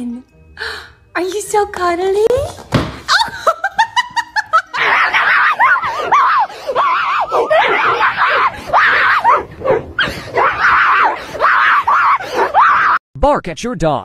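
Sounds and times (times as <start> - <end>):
woman screaming and laughing: 3.1 - 9.4.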